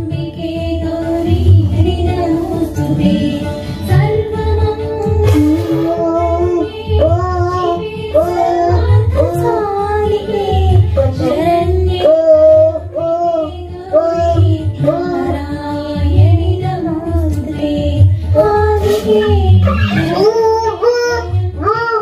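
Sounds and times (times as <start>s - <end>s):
song with high singing voice: 0.0s - 22.0s
drum beat: 5.2s - 6.0s.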